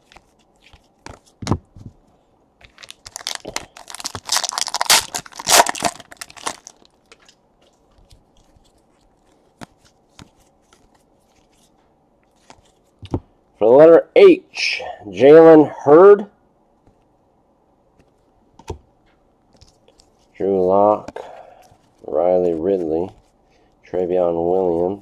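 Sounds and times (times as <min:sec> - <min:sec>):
cards clicking and thumping: 0:00.0 - 0:02.0, 0:18.0 - 0:18.8
foil wrapper tearing and crinkling: 0:02.7 - 0:07.0.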